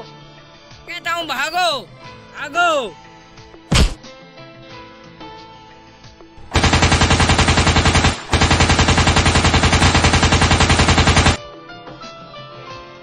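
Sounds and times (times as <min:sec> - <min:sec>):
rapid machine-gun fire: 0:06.4 - 0:11.4.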